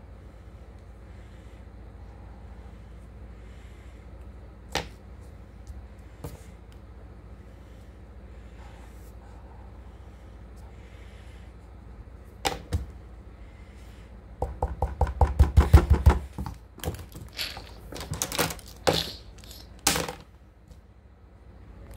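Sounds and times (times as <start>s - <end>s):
rapid knocks: 14.4s - 18.3s
clattering and paper rustling: 16.8s - 20.2s.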